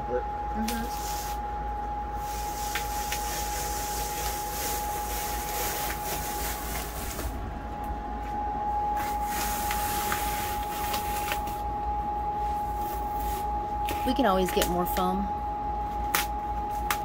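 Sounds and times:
high-pitched hum: 0:00.0 - 0:17.0.

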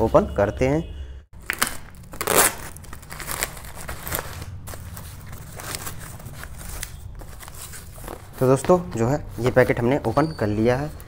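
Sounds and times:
paper being torn and crumpled: 0:01.4 - 0:08.0.

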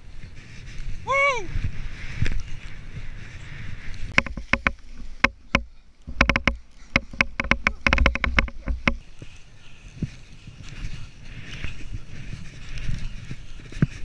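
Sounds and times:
skis running through powder snow: 0:00.0 - 0:05.2, 0:09.0 - 0:14.0
ski gear clattering knocks: 0:04.1 - 0:09.0.

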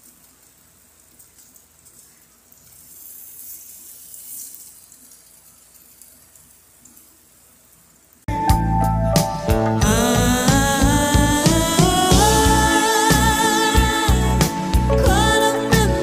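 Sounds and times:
shrimp sizzling in hot oil: 0:00.0 - 0:08.2
music: 0:08.3 - 0:16.0.

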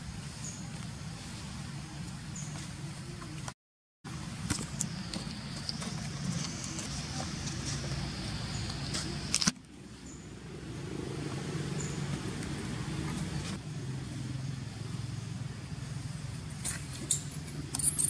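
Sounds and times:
short high squeaks: 0:16.6 - 0:18.0.

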